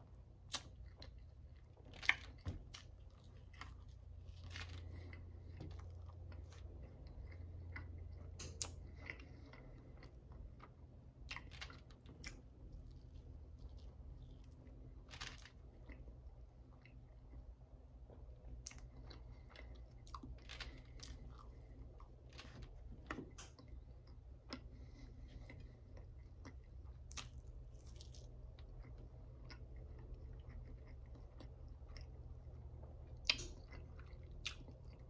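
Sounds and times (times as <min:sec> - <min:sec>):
low steady hum: 0:00.0 - 0:35.0
person chewing and crunching food: 0:00.0 - 0:35.0.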